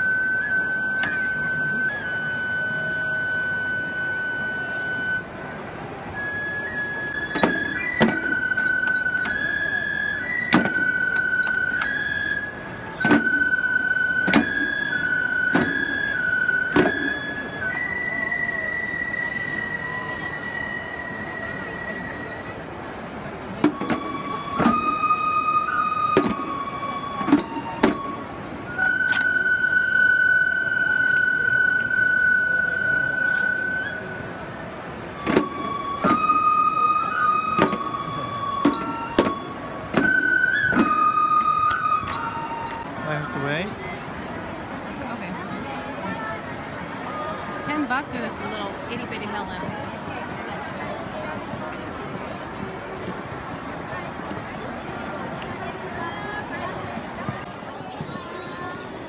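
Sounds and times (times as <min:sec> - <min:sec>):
high flute long notes: 0:00.0 - 0:43.4
sharp percussion strikes: 0:01.0 - 0:01.8, 0:07.2 - 0:12.4, 0:13.0 - 0:18.1, 0:23.6 - 0:29.4, 0:35.1 - 0:42.9
small drum beats: 0:13.0 - 0:17.9, 0:23.6 - 0:29.0, 0:35.2 - 0:36.6.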